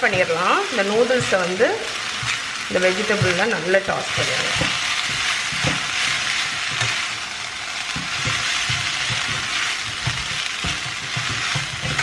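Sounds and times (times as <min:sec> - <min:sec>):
food sizzling in a wok: 0:00.0 - 0:12.0
metal spatula scraping a pan: 0:07.9 - 0:12.0.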